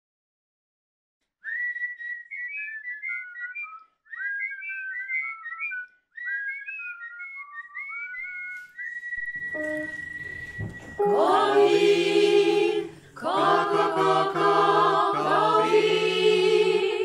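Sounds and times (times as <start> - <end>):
whistling in harmony: 1.4 - 13.4.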